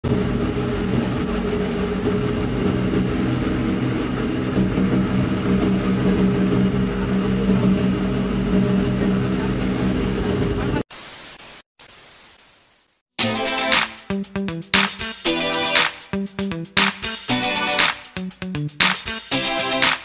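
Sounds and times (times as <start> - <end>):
ferry engine humming: 0.1 - 10.8.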